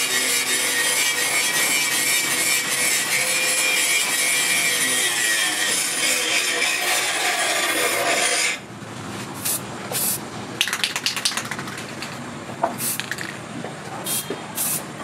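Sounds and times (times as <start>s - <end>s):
aerosol spray can hissing: 14.1s - 14.8s.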